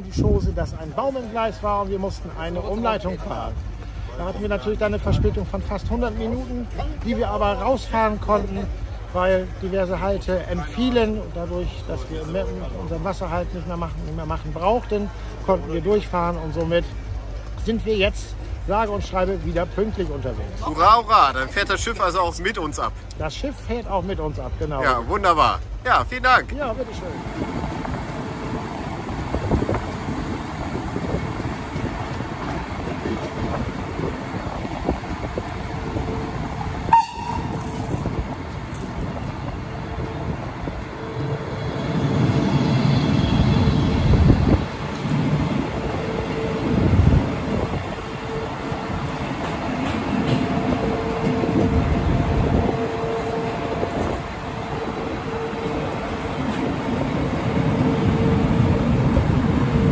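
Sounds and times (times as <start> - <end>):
train rushing: 0.0 - 59.9
wind on microphone: 27.1 - 59.9.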